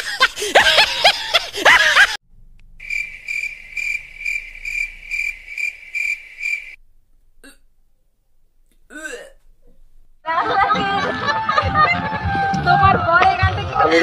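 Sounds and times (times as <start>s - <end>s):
burst of laughter: 0.0s - 2.2s
crickets chirping: 2.7s - 6.8s.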